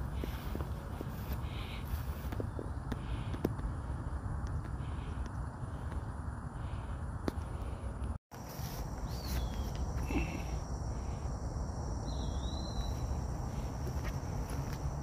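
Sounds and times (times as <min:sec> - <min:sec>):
insects chirring: 0:00.0 - 0:15.0
bird chirps: 0:08.9 - 0:10.5, 0:12.0 - 0:13.7.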